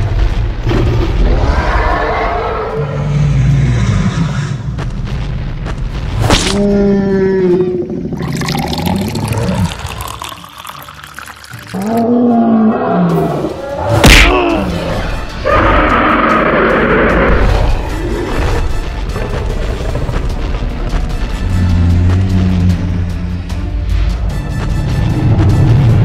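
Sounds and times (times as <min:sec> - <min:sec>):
cartoon gorilla roaring: 0:06.5 - 0:09.9, 0:11.7 - 0:17.5.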